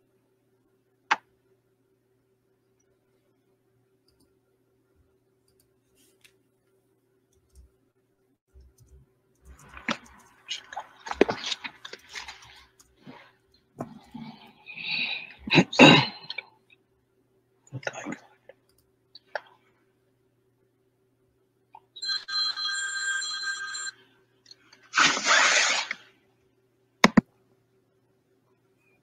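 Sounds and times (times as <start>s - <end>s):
person's raspy vocal noises: 14.1s - 16.4s
electronic ringing tone: 22.0s - 24.0s.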